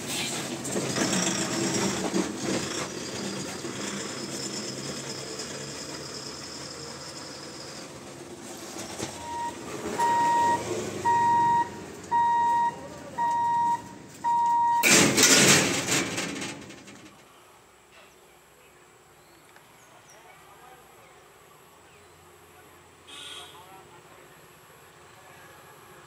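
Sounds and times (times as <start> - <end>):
level crossing warning buzzer: 9.2 - 14.9.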